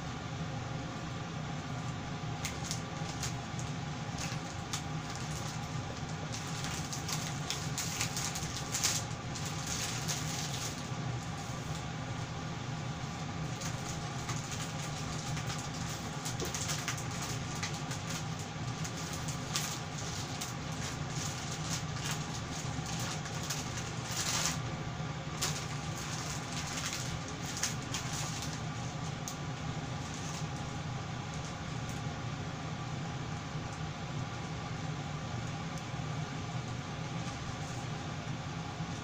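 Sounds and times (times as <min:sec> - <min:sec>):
ventilation fan humming: 0:00.0 - 0:39.0
charcoal grill ticks and crackles: 0:02.4 - 0:11.8.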